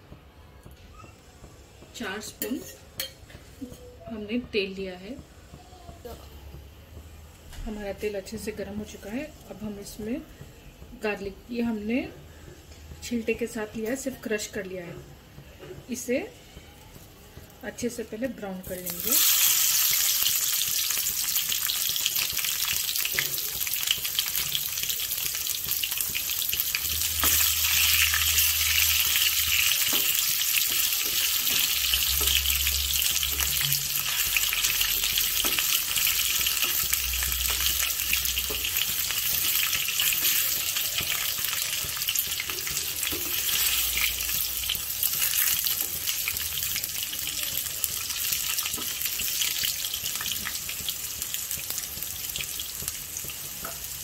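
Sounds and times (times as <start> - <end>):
garlic sizzling in hot oil: 17.3 - 54.0.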